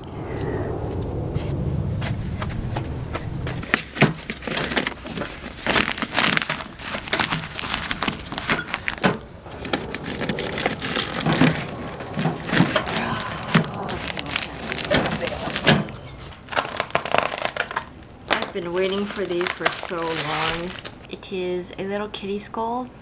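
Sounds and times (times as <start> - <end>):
envelopes crinkling and rustling: 3.6 - 21.1.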